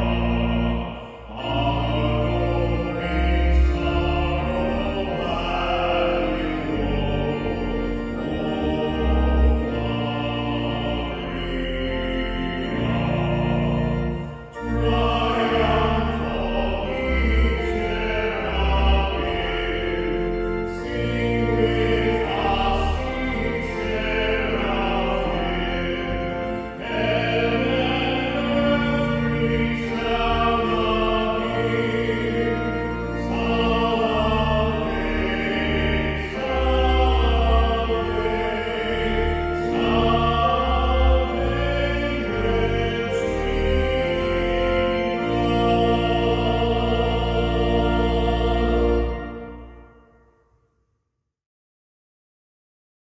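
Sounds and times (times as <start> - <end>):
man singing a hymn: 0.0 - 49.7
sustained instrumental accompaniment: 0.0 - 50.4.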